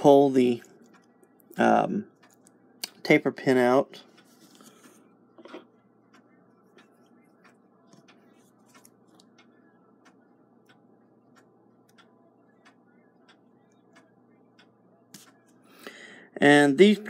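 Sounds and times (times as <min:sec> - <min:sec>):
mechanical clock ticking: 0:06.1 - 0:15.4.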